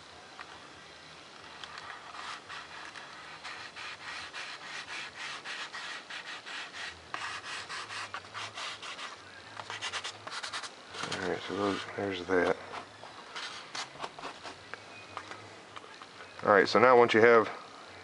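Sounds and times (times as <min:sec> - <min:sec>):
fingers rubbing tape on foam: 0:01.7 - 0:11.9.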